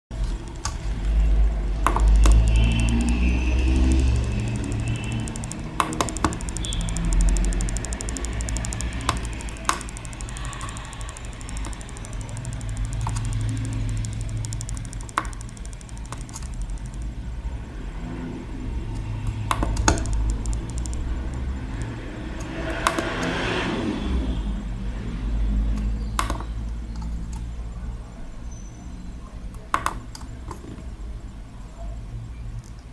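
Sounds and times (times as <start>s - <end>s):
sharp clicks: 1.8s - 17.4s, 18.9s - 23.4s, 25.7s - 27.5s.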